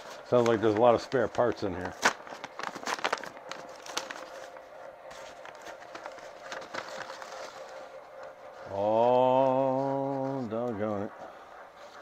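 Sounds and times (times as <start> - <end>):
paper packaging rustling: 0.0 - 8.6.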